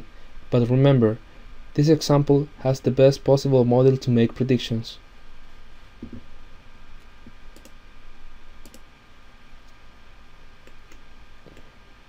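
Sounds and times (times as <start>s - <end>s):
faint steady hum: 0.0s - 12.0s
computer mouse clicking: 7.5s - 7.8s, 8.6s - 8.8s.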